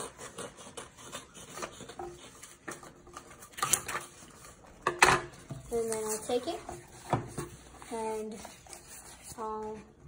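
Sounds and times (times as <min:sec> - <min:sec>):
scissors snipping paper: 0:00.0 - 0:04.2
paper rustling: 0:05.7 - 0:09.9.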